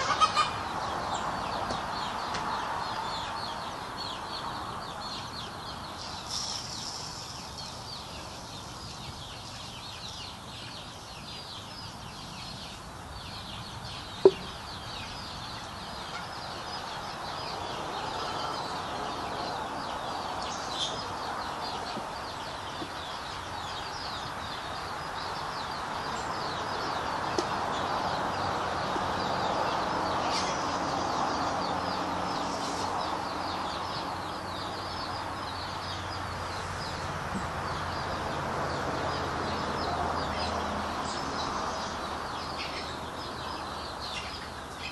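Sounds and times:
chickens clucking: 0:00.0 - 0:03.1, 0:14.2 - 0:23.6.

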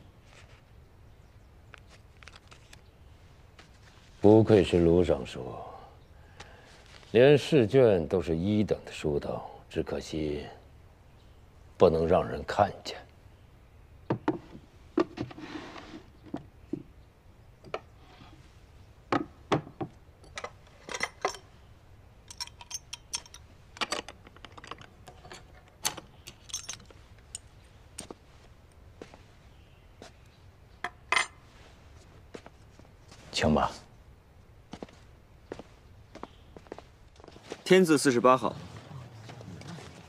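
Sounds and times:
brief rustle: 0:01.7 - 0:02.9
padlock metal clicks and clinks: 0:20.2 - 0:21.5, 0:22.2 - 0:27.5.

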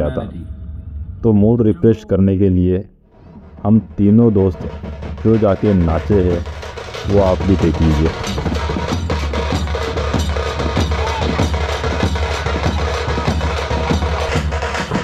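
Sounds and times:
heavy drumming: 0:03.3 - 0:15.0.

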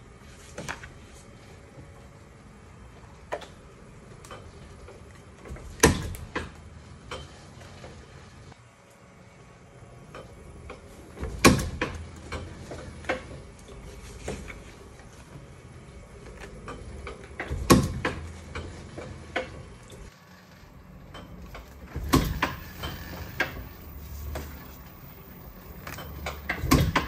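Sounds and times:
printing press heavy clunks: 0:05.4 - 0:07.9, 0:10.7 - 0:14.6, 0:16.5 - 0:20.1, 0:21.0 - 0:27.0
light mechanical clicks and knocks: 0:10.0 - 0:15.5, 0:16.2 - 0:27.0.

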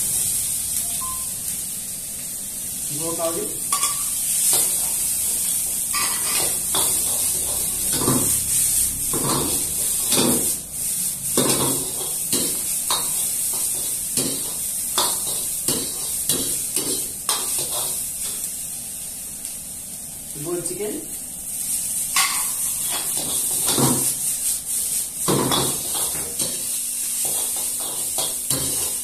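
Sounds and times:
high sizzle from a pan: 0:00.0 - 0:29.0
metal ladle scraping a wok: 0:05.9 - 0:08.1.

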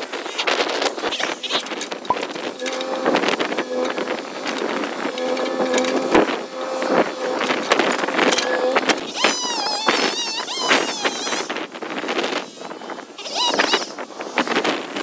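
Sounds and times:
mini excavator engine running: 0:00.4 - 0:11.2.

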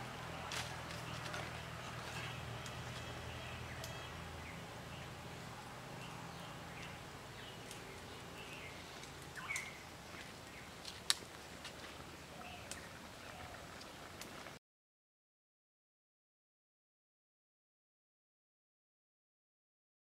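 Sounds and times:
faint bird chirps: 0:06.0 - 0:10.7.

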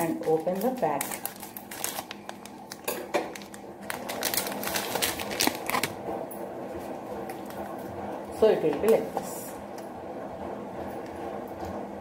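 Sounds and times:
plastic packaging crinkling: 0:00.0 - 0:06.1.

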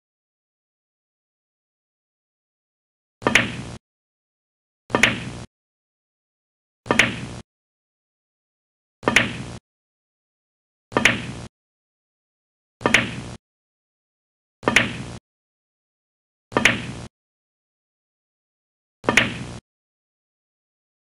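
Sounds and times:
knock sound effect: 0:03.2 - 0:03.8, 0:04.9 - 0:05.4, 0:06.9 - 0:07.4, 0:09.0 - 0:09.5, 0:10.9 - 0:11.4, 0:12.8 - 0:13.4, 0:14.6 - 0:15.0, 0:16.5 - 0:17.0, 0:19.0 - 0:19.5.

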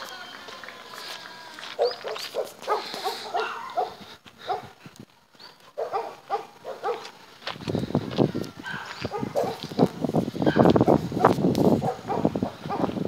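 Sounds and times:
dog barking: 0:01.8 - 0:04.8, 0:05.8 - 0:07.1, 0:08.6 - 0:11.0, 0:11.8 - 0:13.0.

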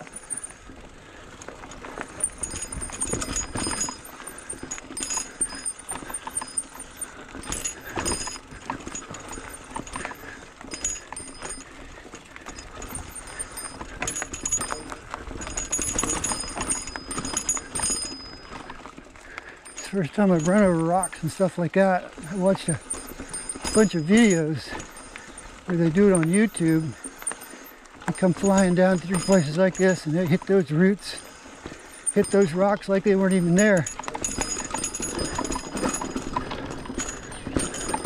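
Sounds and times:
light metallic clinks: 0:00.0 - 0:00.7, 0:01.8 - 0:21.5, 0:22.2 - 0:38.0
bike tyres and frame rattling: 0:00.0 - 0:38.0.

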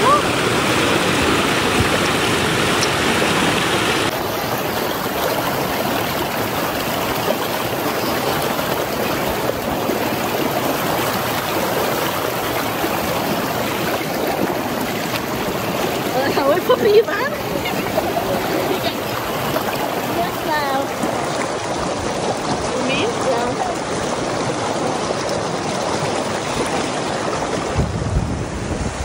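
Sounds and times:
river water rushing over rocks: 0:00.0 - 0:29.0.

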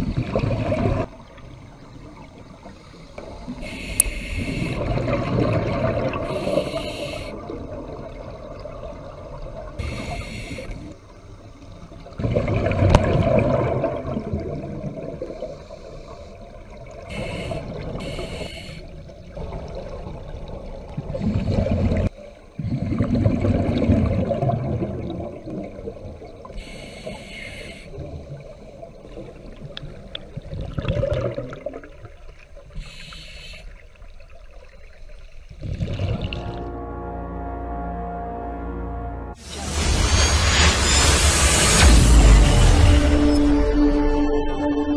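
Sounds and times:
scuba regulator hissing inhale: 0:02.7 - 0:04.9, 0:06.2 - 0:07.4, 0:09.8 - 0:11.0, 0:15.2 - 0:19.0, 0:26.5 - 0:28.0, 0:32.7 - 0:33.8
exhaust bubbles rushing: 0:04.8 - 0:06.3, 0:12.2 - 0:15.2, 0:19.4 - 0:26.1, 0:30.4 - 0:31.9, 0:35.6 - 0:36.8.

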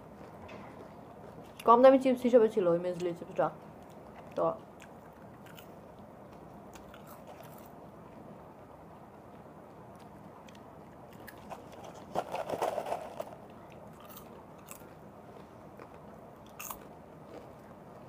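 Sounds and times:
popcorn chewing crunches: 0:03.8 - 0:07.8, 0:09.3 - 0:18.0
hand rustling in plastic cup: 0:11.4 - 0:13.4.

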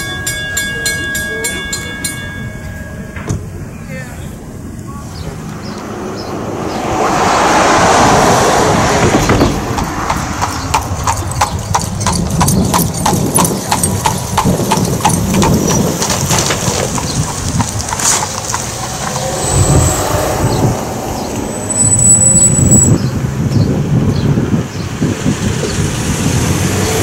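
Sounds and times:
wind rumbling on microphone: 0:02.2 - 0:27.0
horse hooves clip-clopping: 0:09.3 - 0:19.8.

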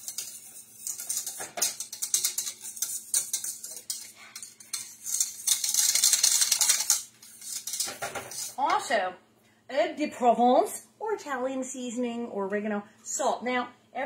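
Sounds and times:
metal whisk scraping a saucepan: 0:00.0 - 0:08.8.

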